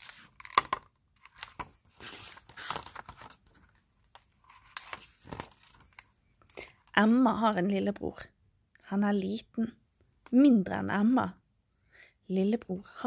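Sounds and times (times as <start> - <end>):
book pages rustling: 0.0 - 6.1.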